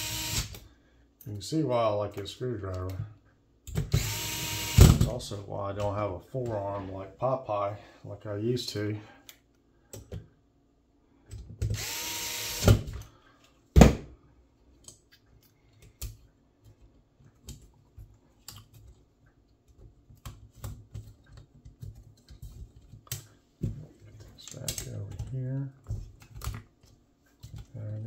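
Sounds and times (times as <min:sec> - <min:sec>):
electric screwdriver running: 0:00.0 - 0:00.6, 0:03.9 - 0:04.9, 0:11.8 - 0:12.9.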